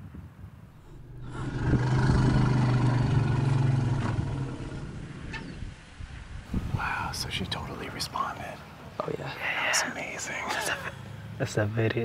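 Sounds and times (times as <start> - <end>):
elephant rumble: 0.7 - 5.8.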